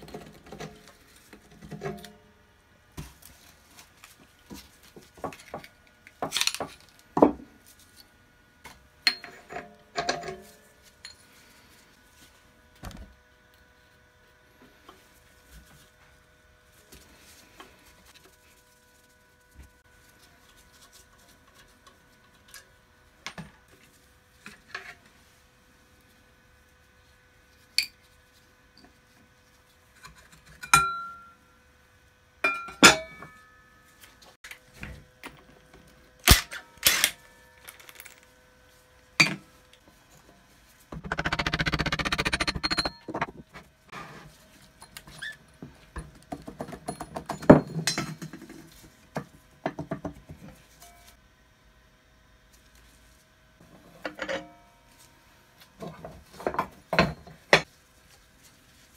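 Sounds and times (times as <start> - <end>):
metal parts clinking: 36.3 - 38.3.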